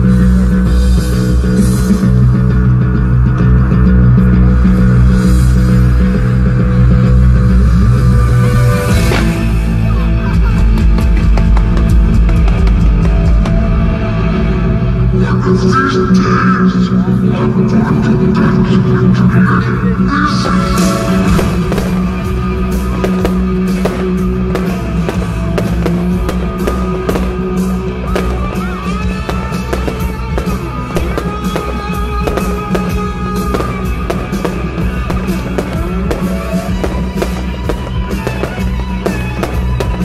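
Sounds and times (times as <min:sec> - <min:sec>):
show music playing: 0:07.7 - 0:40.0
fireworks popping and crackling: 0:08.8 - 0:09.6, 0:10.7 - 0:13.8, 0:20.3 - 0:40.0.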